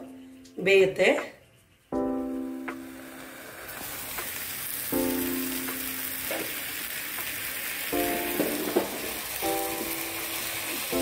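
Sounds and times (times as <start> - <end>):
keyboard chords music: 1.9 - 7.0, 7.8 - 11.0
food sizzling in oil: 2.1 - 11.0.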